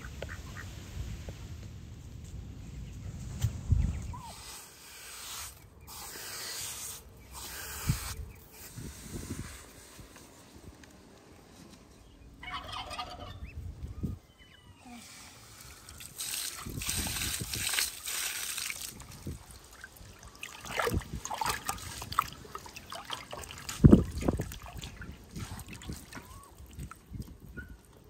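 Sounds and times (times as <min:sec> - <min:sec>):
water sloshing in a basin: 0:15.9 - 0:27.4.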